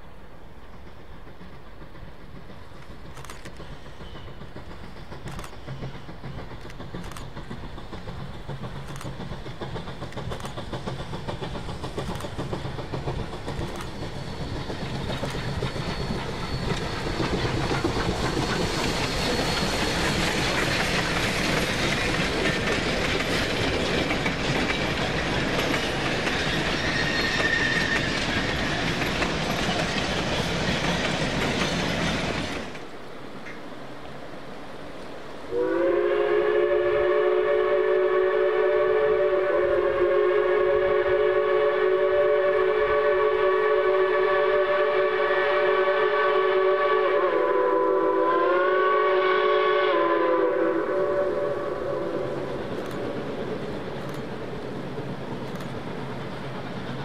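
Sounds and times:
steam locomotive exhaust beats: 0:00.0 - 0:57.0
high wheel squeal: 0:13.8 - 0:20.9, 0:26.3 - 0:28.9.

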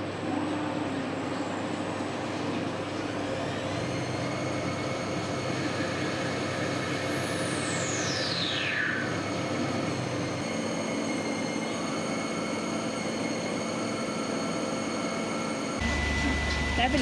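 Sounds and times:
thin machine whine: 0:00.0 - 0:17.0
lathe machining noise: 0:01.5 - 0:17.0
high whine falling in pitch: 0:06.6 - 0:12.2.

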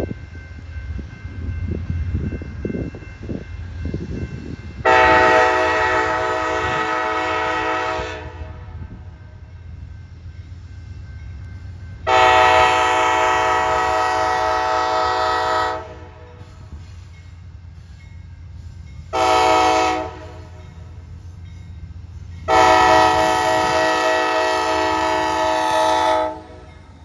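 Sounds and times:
train rumbling: 0:00.0 - 0:27.0
locomotive air horn blasts: 0:04.8 - 0:08.8, 0:12.1 - 0:16.4, 0:19.1 - 0:20.6, 0:22.5 - 0:26.7.

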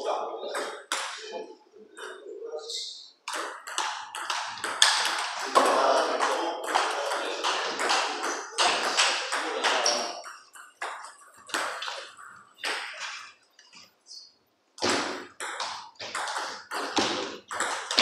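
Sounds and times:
ball bouncing on table: 0:00.6 - 0:01.2, 0:03.2 - 0:13.3, 0:14.8 - 0:18.0
ping pong ball clicking off paddles: 0:03.2 - 0:13.8, 0:14.8 - 0:18.0.

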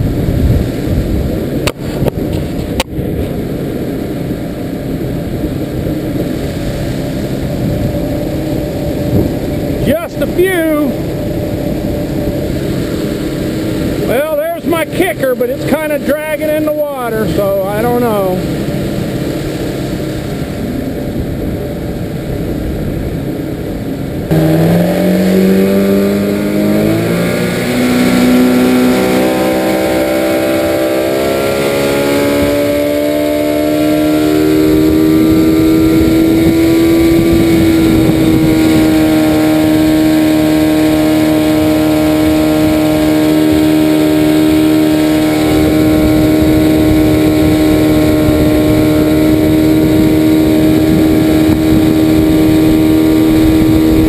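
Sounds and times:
outboard motor: 0:00.0 - 0:54.0
wind and water rushing: 0:00.0 - 0:54.0.

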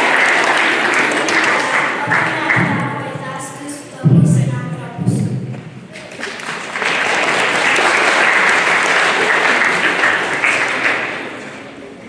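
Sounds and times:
audience applauding: 0:00.0 - 0:03.0, 0:05.9 - 0:12.0.

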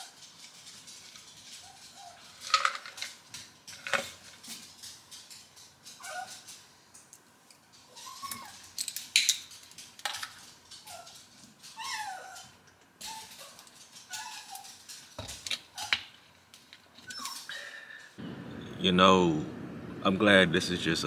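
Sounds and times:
dog whimpering: 0:06.0 - 0:06.4, 0:07.9 - 0:08.6, 0:10.8 - 0:14.8.

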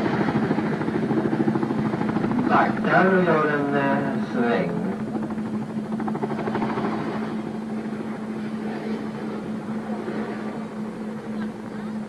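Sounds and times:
helicopter rotors beating: 0:00.0 - 0:12.0.

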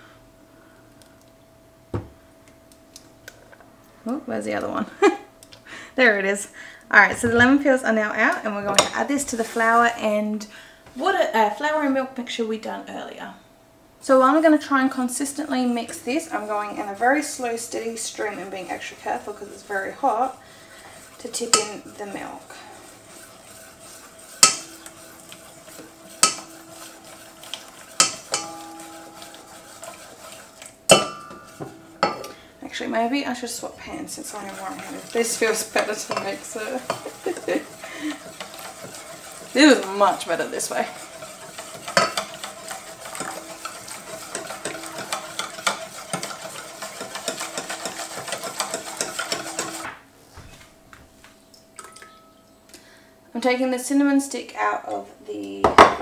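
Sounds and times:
faint whisking: 0:06.9 - 0:11.6, 0:14.0 - 0:49.9
metal clanking on mixing bowl: 0:08.7 - 0:09.1, 0:15.8 - 0:32.4, 0:33.8 - 0:49.8.

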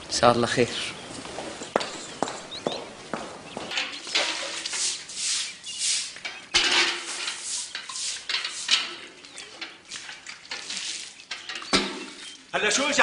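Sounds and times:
metal pail clattering: 0:03.7 - 0:05.2, 0:06.1 - 0:12.5
broom swishing on wet stone floor: 0:04.0 - 0:11.3.

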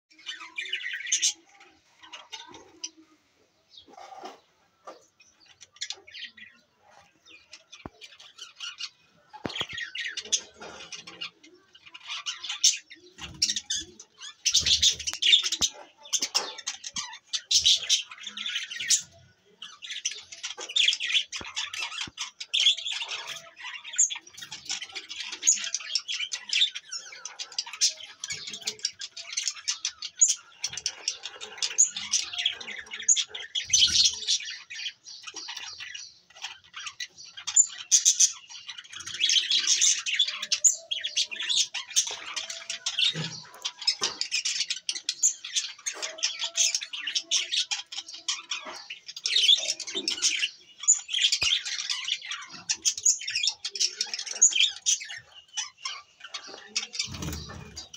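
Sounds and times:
budgerigars chattering: 0:03.8 - 0:57.9.

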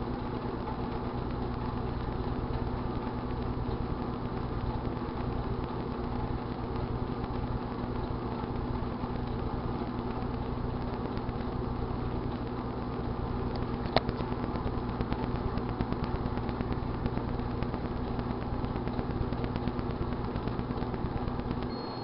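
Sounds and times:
crackling ticks and pop: 0:00.0 - 0:21.7
microwave oven humming: 0:00.0 - 0:22.0
high beep: 0:21.7 - 0:22.0.

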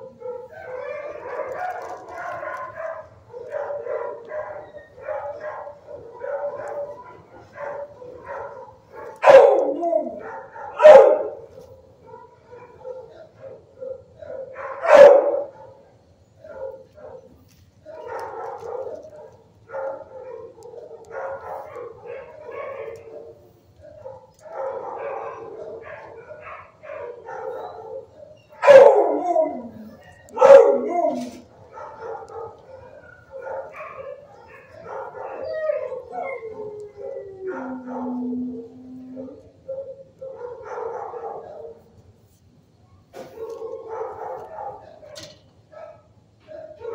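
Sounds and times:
dog howling: 0:00.0 - 0:11.5, 0:19.8 - 0:41.8
dogs barking and yelping: 0:00.0 - 0:42.0, 0:42.8 - 0:46.9.

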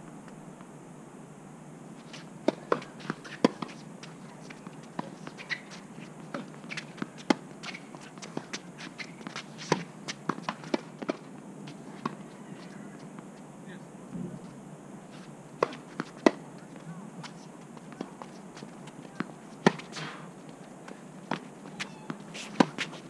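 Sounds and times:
shoes on court: 0:02.0 - 0:13.2, 0:14.2 - 0:23.0
tennis ball bouncing on court: 0:15.6 - 0:16.4, 0:17.8 - 0:20.0.

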